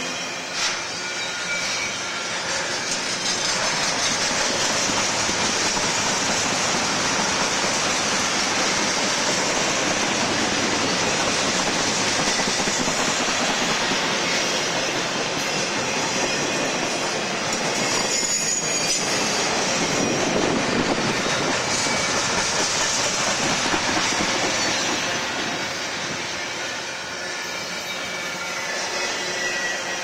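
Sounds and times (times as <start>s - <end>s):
steel train wheels on rails: 0.0s - 30.0s.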